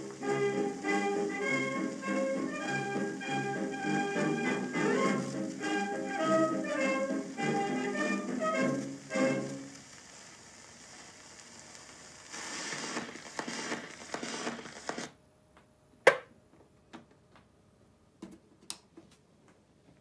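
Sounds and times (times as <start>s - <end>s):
scratchy crackle through speaker: 0.0s - 15.2s
stylus hiss and crackle: 0.0s - 15.2s.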